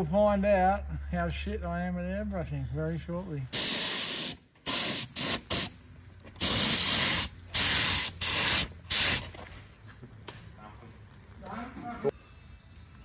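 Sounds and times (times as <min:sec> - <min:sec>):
spray gun hissing: 0:03.6 - 0:05.8, 0:06.4 - 0:09.2.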